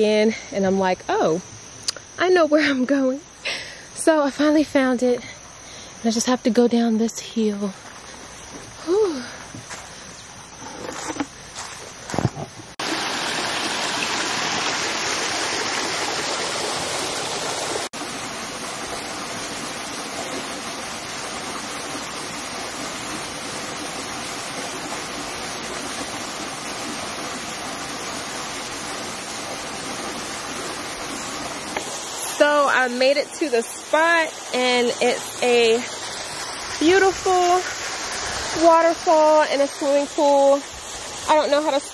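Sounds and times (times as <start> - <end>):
waterfall rushing: 12.8 - 32.5.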